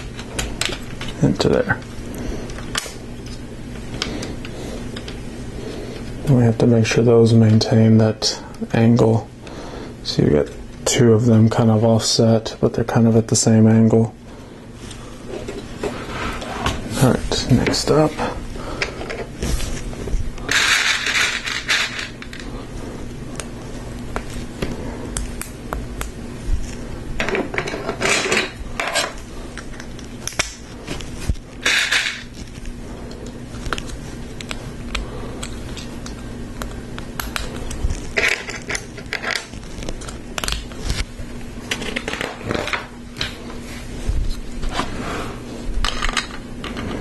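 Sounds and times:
plastic pieces rattling: 20.5s - 22.5s.

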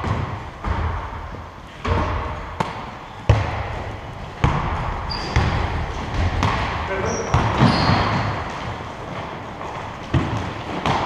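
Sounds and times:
basketball bouncing on court floor: 0.0s - 11.0s
high squeak: 7.0s - 8.1s.

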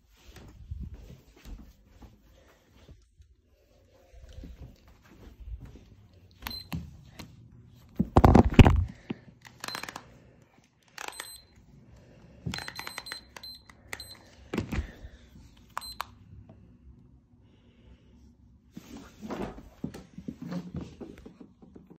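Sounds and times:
phone being handled: 7.9s - 10.1s, 12.5s - 15.0s.

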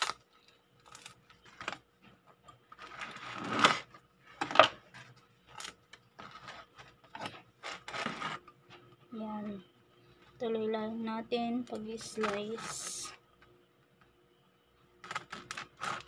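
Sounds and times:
crust crackling: 0.0s - 14.1s, 14.8s - 16.0s
knife scraping on board: 6.2s - 8.4s
bread knife sawing crust: 7.6s - 8.4s.

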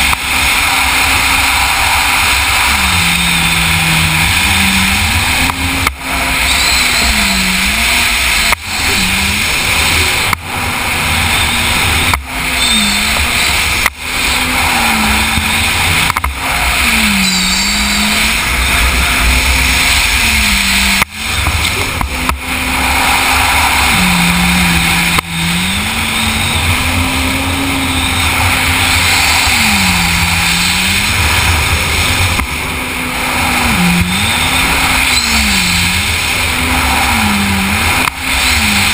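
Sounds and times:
watercraft engine revving: 0.0s - 38.9s
wind and water spray rushing: 0.0s - 38.9s.

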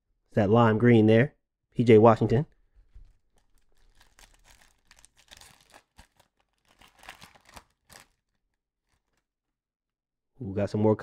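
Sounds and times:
trading cards rustling: 2.9s - 9.2s.

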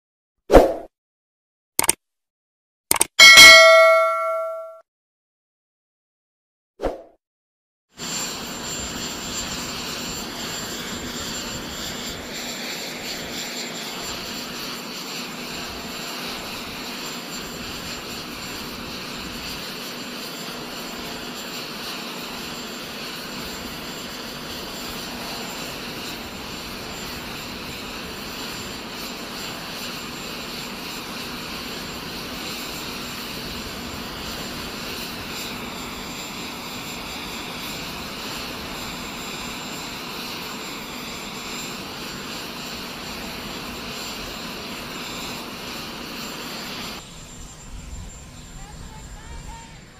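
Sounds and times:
high whine: 3.2s - 4.8s
jet turbine running: 8.0s - 49.9s.

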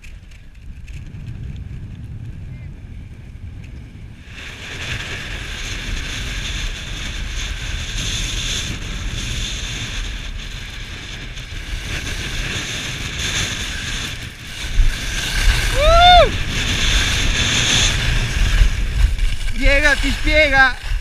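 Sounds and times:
wind buffeting microphone: 0.0s - 21.0s
skis sliding on snow: 4.2s - 21.0s.

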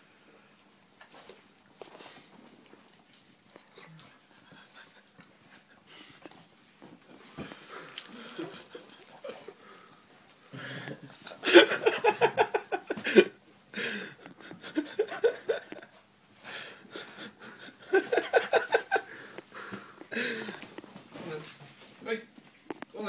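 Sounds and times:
people laughing: 10.5s - 16.0s, 16.9s - 19.3s.

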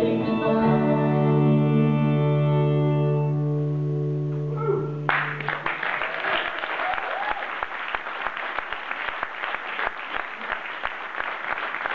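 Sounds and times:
audience applauding: 5.1s - 11.9s.

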